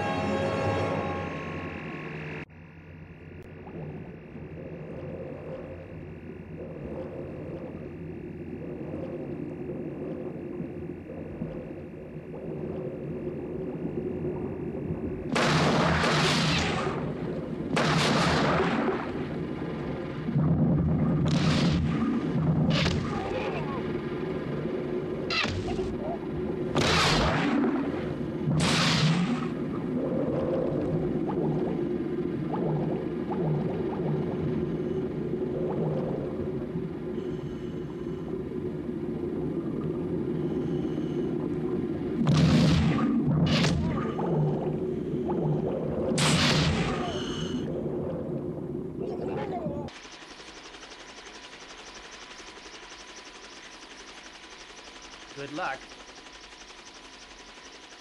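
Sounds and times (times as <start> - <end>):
steady low hum: 0.0 - 58.0
low underwater rumble: 2.5 - 16.0, 16.9 - 26.8, 29.3 - 49.9
muffled rushing bubble blasts: 3.4 - 37.2, 41.2 - 47.1.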